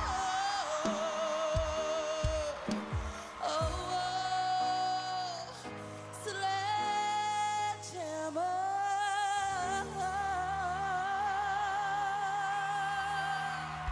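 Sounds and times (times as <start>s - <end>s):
band accompaniment: 0.0s - 4.1s
woman singing: 0.0s - 13.9s.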